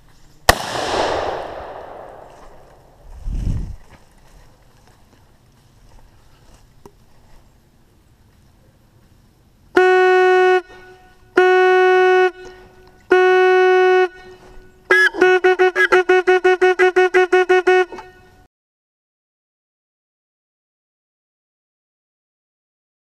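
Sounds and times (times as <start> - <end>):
hunting horn blasts: 9.7 - 18.5.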